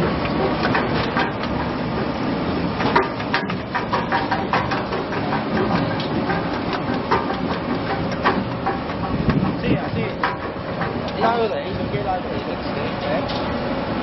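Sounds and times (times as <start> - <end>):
clattering knocks: 2.8 - 11.6.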